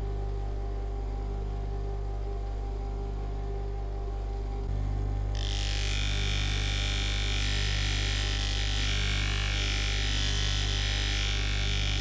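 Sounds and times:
bench grinder motor humming: 0:05.4 - 0:12.0.

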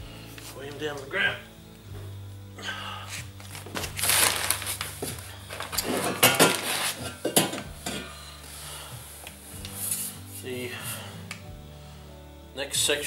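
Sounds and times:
cardboard box rustling: 0:03.4 - 0:07.2
metal pipes knocking and clinking: 0:05.7 - 0:08.1.

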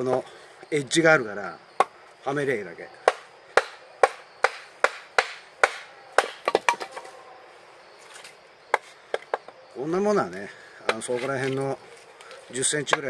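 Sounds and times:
knife chopping firewood on stump: 0:03.0 - 0:07.1, 0:10.8 - 0:11.6.

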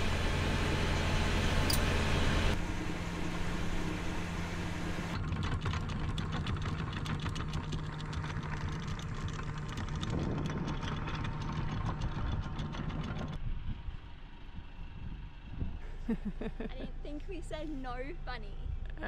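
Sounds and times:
boat engine running: 0:00.0 - 0:19.0
sharp rattling clicks: 0:05.2 - 0:13.4.

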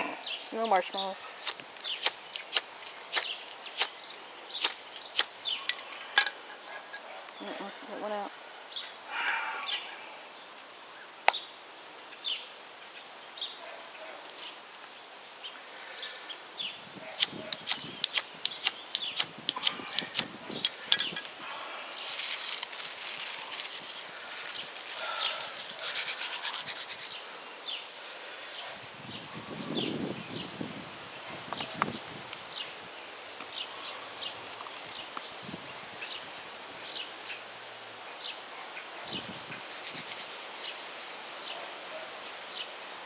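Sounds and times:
birds chirping: 0:00.0 - 0:42.8
ferro rod scraping: 0:21.9 - 0:27.2.

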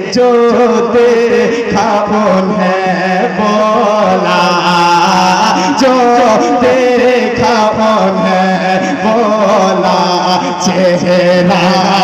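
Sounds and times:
man singing into a microphone: 0:00.0 - 0:12.0.

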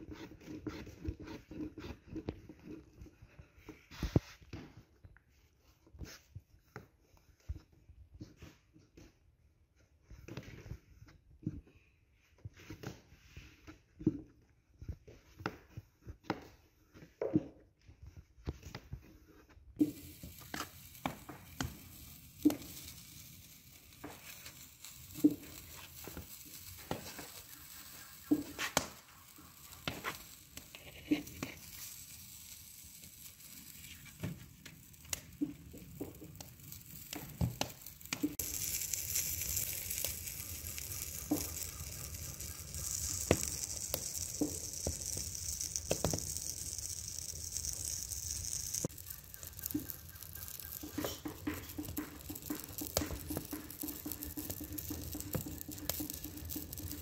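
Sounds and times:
food sizzling on griddle: 0:19.8 - 0:57.0.

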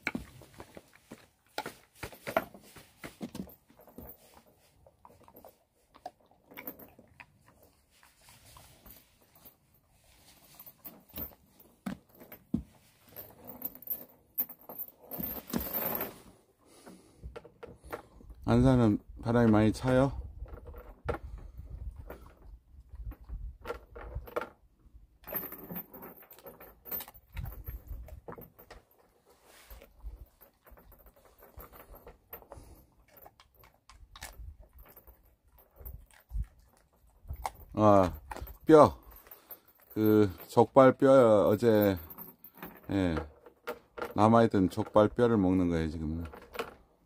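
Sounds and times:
metal chain clinking on boards: 0:00.0 - 0:07.6, 0:08.7 - 0:18.8, 0:25.2 - 0:45.2
dog licking on wooden deck: 0:32.6 - 0:37.7.

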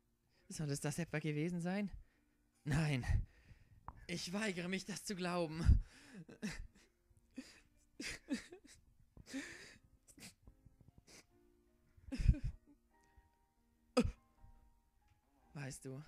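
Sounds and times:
person breathing and sighing: 0:02.0 - 0:04.1, 0:05.6 - 0:11.4, 0:12.1 - 0:12.7
soft background music: 0:04.0 - 0:16.0.

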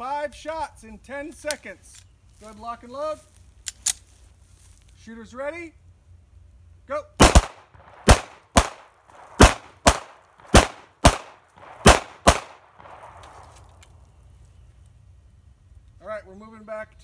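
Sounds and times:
pistol shots: 0:07.2 - 0:13.5.

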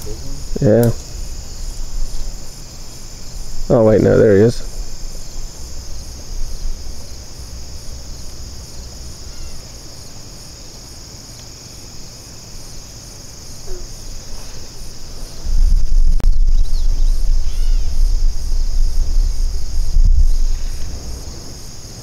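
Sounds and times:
crickets trilling: 0:00.0 - 0:22.0
pulsing insect chirp: 0:00.0 - 0:22.0
low rumble on microphone: 0:13.7 - 0:22.0.

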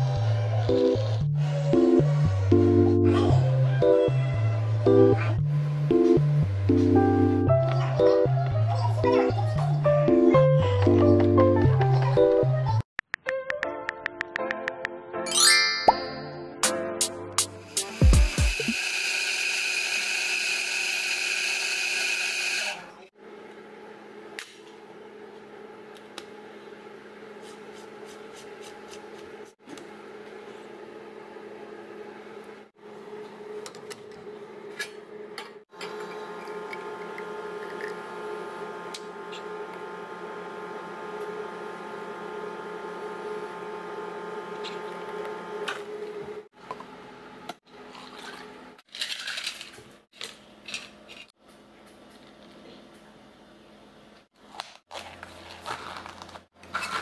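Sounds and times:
espresso machine pump humming: 0:18.0 - 0:22.8, 0:35.8 - 0:46.4.

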